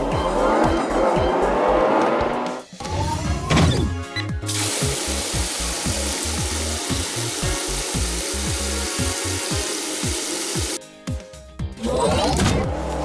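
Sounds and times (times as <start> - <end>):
background music with beat: 0.0 - 2.9, 3.9 - 11.7
spray nozzles hissing: 4.5 - 10.8.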